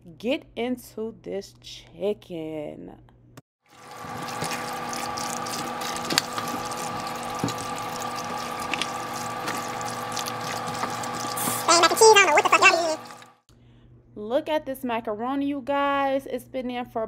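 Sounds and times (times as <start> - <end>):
wooden spoon stirring macaroni: 3.8 - 13.2.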